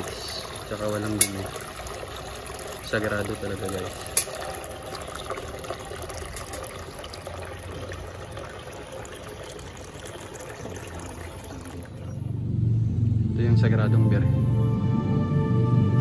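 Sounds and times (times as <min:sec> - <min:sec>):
water pouring into tub: 0:00.0 - 0:12.2.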